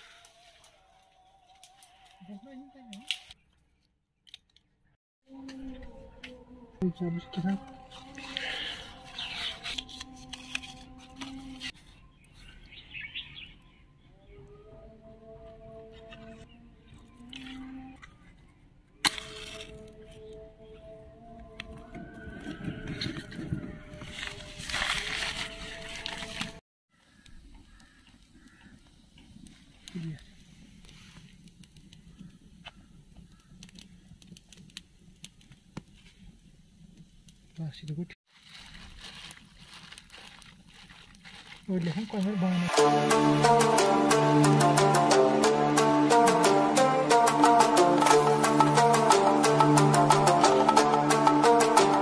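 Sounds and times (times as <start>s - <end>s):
paper crackling and tearing: 7.9s - 11.8s, 24.0s - 26.6s, 38.3s - 43.0s
birds chirping: 11.8s - 15.0s
sharp clicks and crackles: 27.2s - 37.6s.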